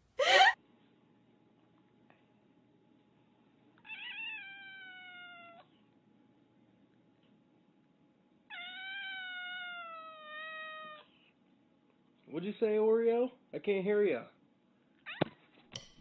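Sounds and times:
cat meowing: 3.8 - 5.7, 8.5 - 11.1.

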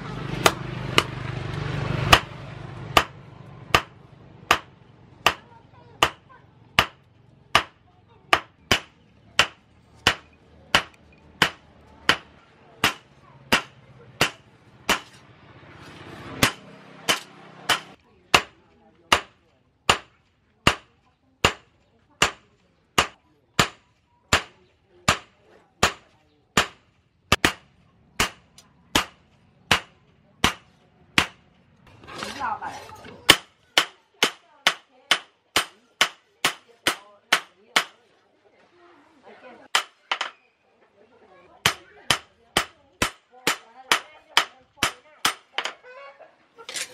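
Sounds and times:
hammer striking metal: 2.1 - 6.2, 6.8 - 15.2, 16.4 - 18.5, 19.1 - 26.0, 28.2 - 31.4
hammer striking blade on anvil: 7.6 - 15.2.

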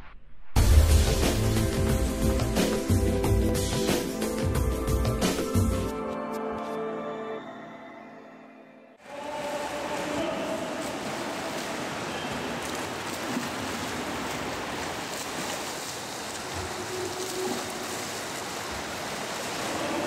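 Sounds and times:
swimmers splashing in a pool: 9.0 - 20.0.

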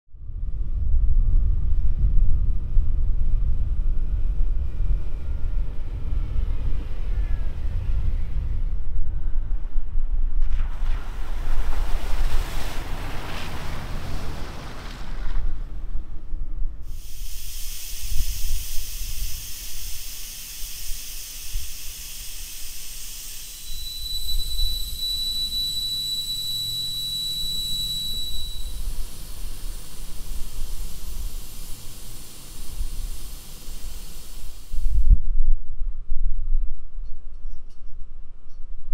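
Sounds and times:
wind rumbling on microphone: 0.1 - 38.9
air hissing from tyre valve: 16.8 - 35.1
thin whistle: 16.9 - 35.0.

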